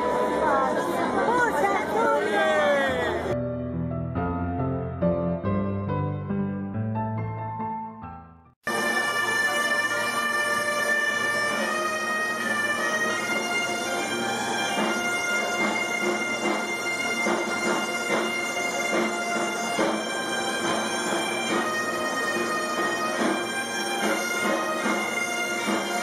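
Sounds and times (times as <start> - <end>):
bagpipe band playing: 8.6 - 26.0
side drum beating: 14.7 - 26.0.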